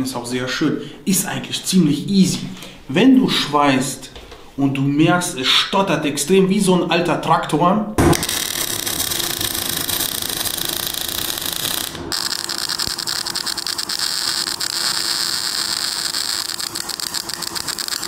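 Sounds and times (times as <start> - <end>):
welding arc crackling: 8.1 - 18.0.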